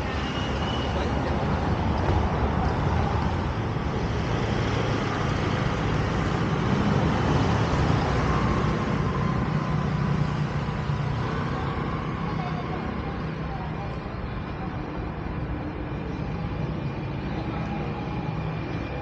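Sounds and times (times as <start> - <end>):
street traffic: 0.0 - 19.0.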